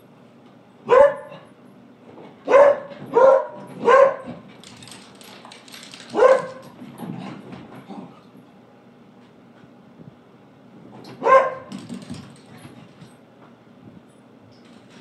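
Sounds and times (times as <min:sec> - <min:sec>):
dogs barking: 0:00.8 - 0:01.5, 0:02.5 - 0:04.4, 0:06.0 - 0:06.7, 0:11.2 - 0:11.7.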